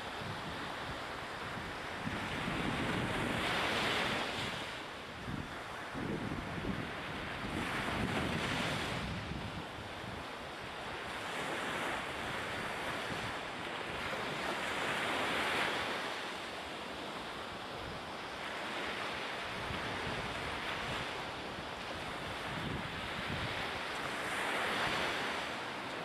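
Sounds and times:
wind buffeting microphone: 0.0 - 10.3, 18.8 - 25.5.

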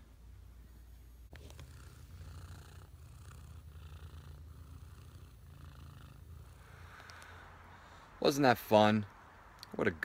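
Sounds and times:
cat purring: 0.7 - 7.4.

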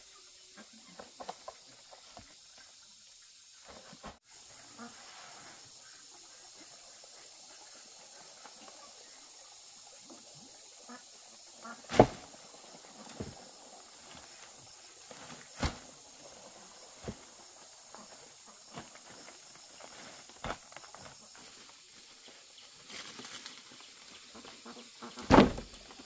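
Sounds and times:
dry thatch crackling and rustling: 11.9 - 12.3, 14.0 - 16.0, 18.7 - 25.8.

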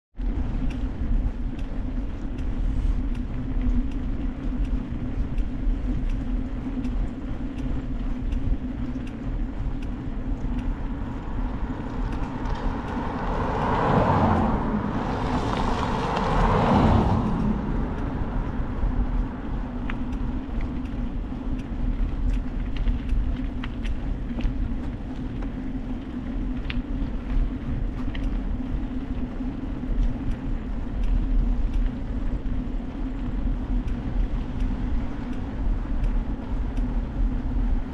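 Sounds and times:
low rumble of riding: 0.2 - 37.9
car passing: 8.8 - 22.5.

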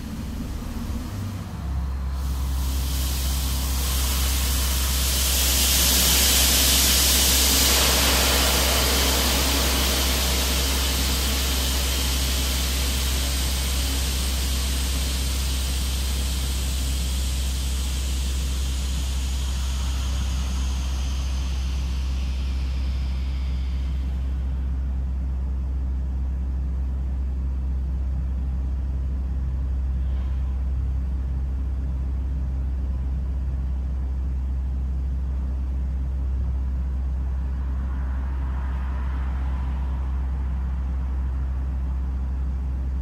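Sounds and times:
loud hiss: 0.0 - 25.8
low engine drone: 0.0 - 43.0.

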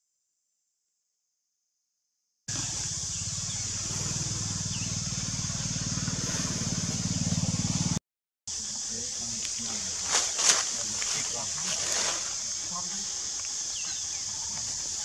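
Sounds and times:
engine running steadily: 2.5 - 8.0
steady high hiss: 2.5 - 15.0.

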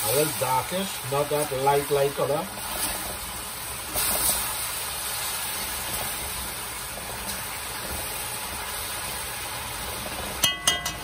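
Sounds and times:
meat sizzling in sugar: 0.0 - 11.0
metal spoon stirring pot: 10.4 - 11.0.

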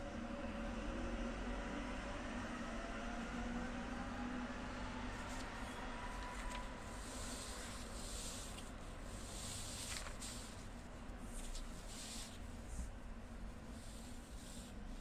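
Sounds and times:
low steady hum: 0.0 - 15.0
paper sliding and rustling on felt: 5.2 - 12.9, 13.6 - 15.0.

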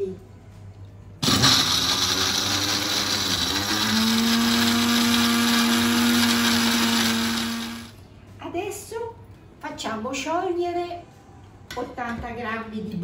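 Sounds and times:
blender grinding biscuits: 1.2 - 7.9.

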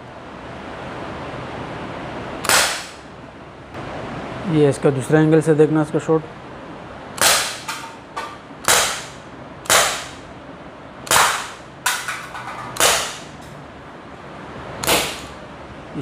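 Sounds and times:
air pistol shots: 2.4 - 3.0, 7.2 - 7.8, 8.6 - 10.2, 11.0 - 11.6, 12.8 - 13.3, 14.8 - 15.4.

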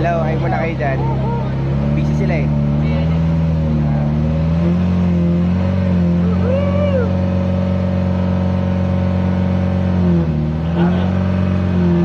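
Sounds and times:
people talking: 0.0 - 4.2, 6.1 - 7.2, 10.7 - 11.2
boat engine running: 0.0 - 12.0.

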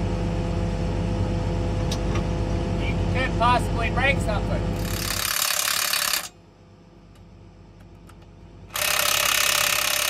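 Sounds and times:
cordless power tool running: 4.8 - 6.3, 8.7 - 10.0.

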